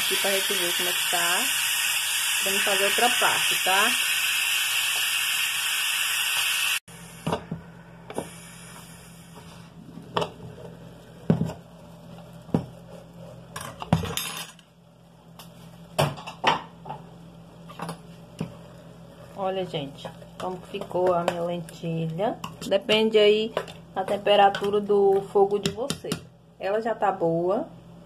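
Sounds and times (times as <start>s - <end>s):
pressure cooker steam hissing: 0.0s - 7.3s.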